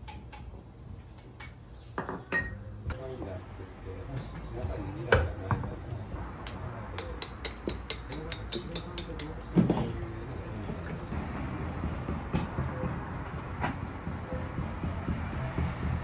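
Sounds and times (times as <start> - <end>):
glassware and crockery clinking: 2.0 - 2.7.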